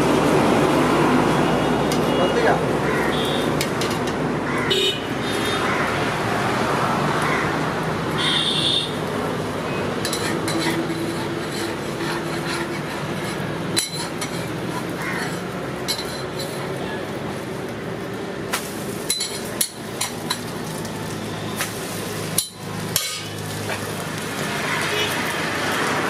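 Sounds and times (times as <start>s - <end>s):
traffic noise: 0.0s - 26.0s
high-pitched vehicle horn toot: 8.2s - 9.0s.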